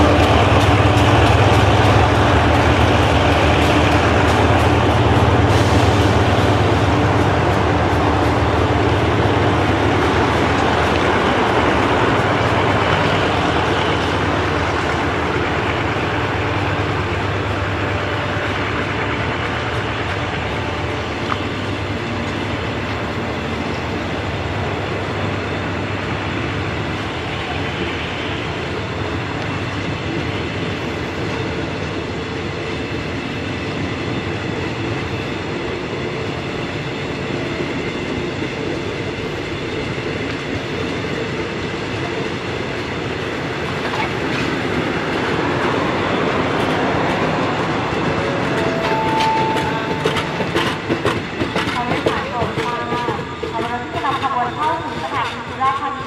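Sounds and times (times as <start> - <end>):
steel wheels on rail: 0.0 - 56.0.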